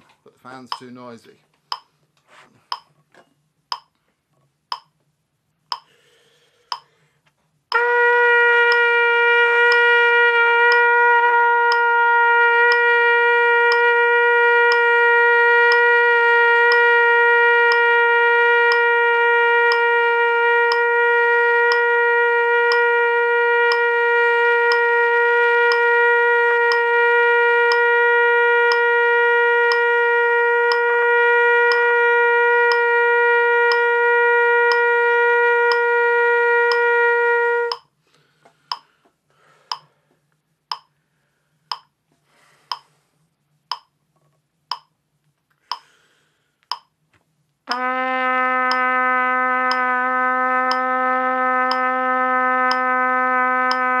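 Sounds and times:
metronome clicking: 0:00.6 - 0:02.0, 0:02.7 - 0:03.0, 0:03.7 - 0:04.0, 0:04.7 - 0:05.0, 0:05.7 - 0:06.0, 0:06.7 - 0:07.0, 0:08.7 - 0:08.9, 0:09.7 - 0:09.9, 0:10.7 - 0:10.9, 0:11.7 - 0:11.9, 0:12.7 - 0:12.9, 0:13.7 - 0:13.9, 0:14.7 - 0:14.9, 0:15.7 - 0:15.9, 0:16.7 - 0:16.9, 0:17.7 - 0:17.9, 0:18.7 - 0:18.9, 0:19.7 - 0:19.9, 0:20.7 - 0:20.9, 0:21.7 - 0:21.9, 0:22.7 - 0:22.9, 0:23.7 - 0:23.9, 0:24.7 - 0:24.9, 0:25.7 - 0:25.9, 0:26.7 - 0:26.9, 0:27.7 - 0:27.9, 0:28.7 - 0:28.9, 0:29.7 - 0:29.9, 0:30.7 - 0:30.9, 0:32.7 - 0:32.9, 0:33.7 - 0:33.9, 0:34.7 - 0:34.9, 0:35.7 - 0:35.9, 0:36.7 - 0:36.9, 0:37.7 - 0:37.9, 0:38.7 - 0:39.0, 0:39.7 - 0:39.9, 0:40.7 - 0:41.0, 0:41.7 - 0:42.0, 0:42.7 - 0:42.9, 0:43.7 - 0:44.0, 0:44.7 - 0:45.0, 0:45.6 - 0:46.0, 0:46.6 - 0:47.0, 0:49.7 - 0:49.9, 0:50.7 - 0:50.9, 0:51.7 - 0:51.9, 0:52.6 - 0:53.0, 0:53.7 - 0:54.0
trumpet long note: 0:07.7 - 0:37.8, 0:47.7 - 0:54.0.

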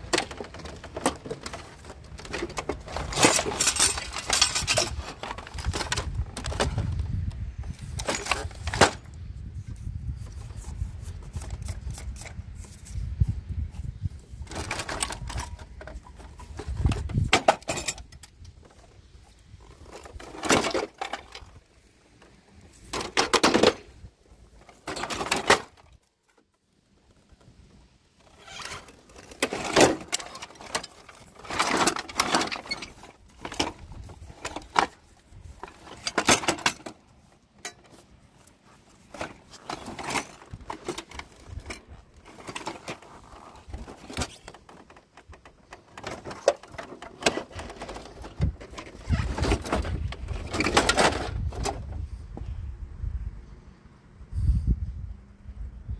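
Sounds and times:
metal parts clattering: 0:00.0 - 0:07.0, 0:07.6 - 0:09.1, 0:14.2 - 0:21.6, 0:22.6 - 0:26.0, 0:28.2 - 0:51.8.

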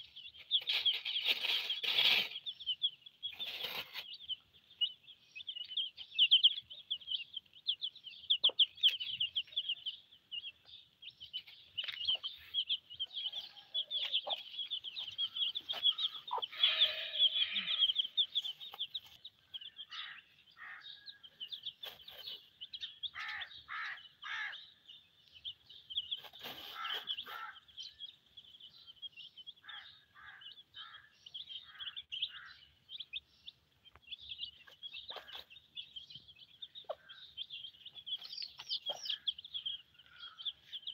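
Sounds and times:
chicks peeping: 0:00.0 - 0:40.9
hen clucking: 0:11.0 - 0:20.8, 0:26.1 - 0:27.9, 0:34.4 - 0:36.0, 0:36.6 - 0:40.9.

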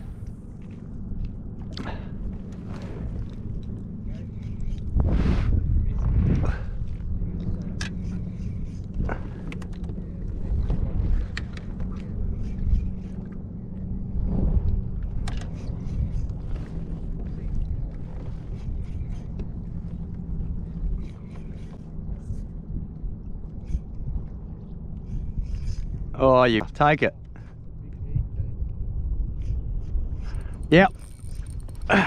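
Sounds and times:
water lapping against kayak hull: 0:01.5 - 0:07.8
wind buffeting microphone: 0:02.8 - 0:26.9, 0:27.6 - 0:32.0.

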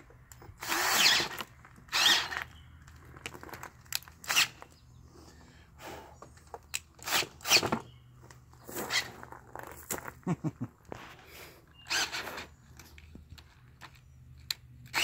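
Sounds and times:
cordless drill drilling metal: 0:00.6 - 0:02.5, 0:07.0 - 0:07.8, 0:11.9 - 0:12.5.

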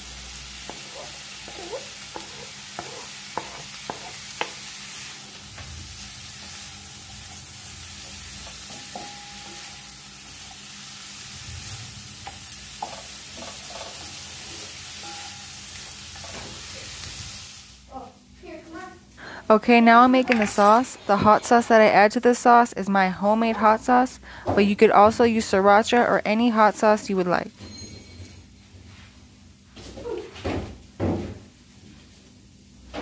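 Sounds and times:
vegetables sizzling in oil: 0:00.0 - 0:18.0
spatula tapping: 0:01.5 - 0:04.7, 0:08.1 - 0:09.7.

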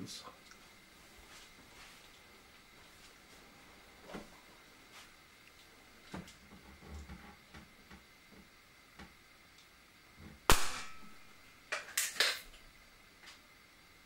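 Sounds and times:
air pistol shot: 0:10.5 - 0:11.2.

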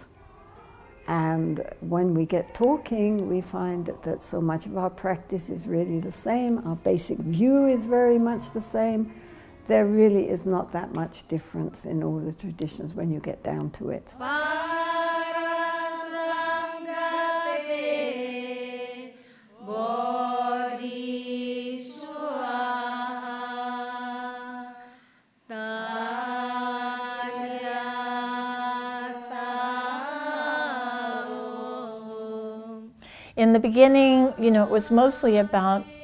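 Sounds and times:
women chanting in unison: 0:00.0 - 0:09.8, 0:14.2 - 0:36.0.

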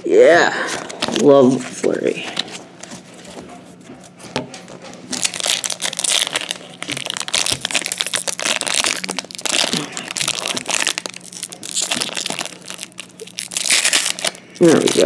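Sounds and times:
foil wrapper crinkling and tearing: 0:00.7 - 0:01.6, 0:05.1 - 0:15.0.

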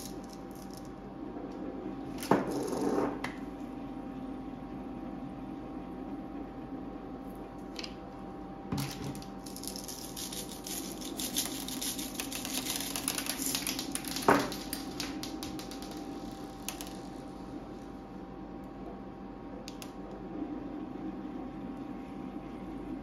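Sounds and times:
sprinkles scattering as tiny clicks: 0:09.2 - 0:17.1
sprinkles rattling in plastic shaker: 0:09.4 - 0:17.0.

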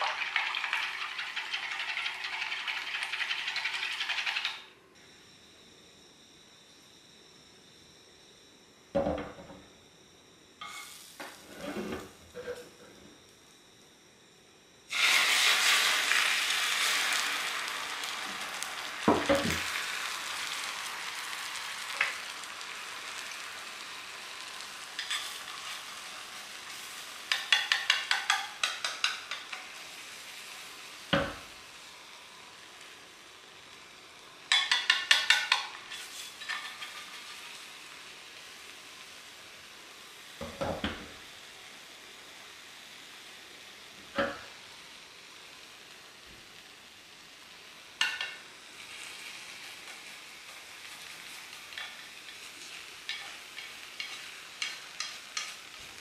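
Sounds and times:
egg sizzling in a hot pan: 0:00.0 - 0:04.7, 0:10.6 - 0:11.6, 0:14.9 - 0:56.0
chopsticks tapping a pan: 0:27.2 - 0:29.7, 0:34.5 - 0:35.8, 0:48.0 - 0:48.4, 0:53.1 - 0:55.6.

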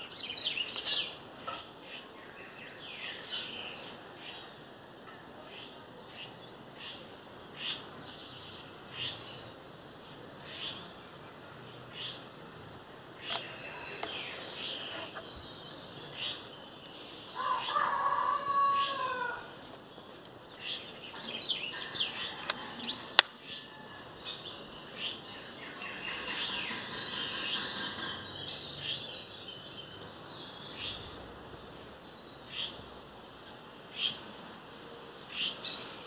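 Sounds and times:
small birds chirping: 0:00.0 - 0:36.0
rooster crowing: 0:17.4 - 0:19.5, 0:22.0 - 0:24.2.

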